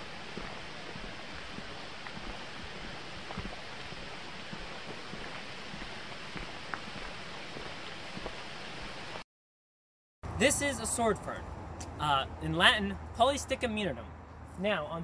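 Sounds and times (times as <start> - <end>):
footsteps on dirt trail: 0.0 - 9.2
steady rushing hiss: 0.0 - 9.2.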